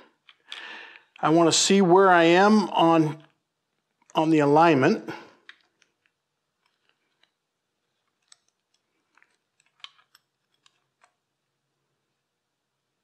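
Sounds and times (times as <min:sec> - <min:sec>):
metal chain clicks: 0:05.4 - 0:11.2.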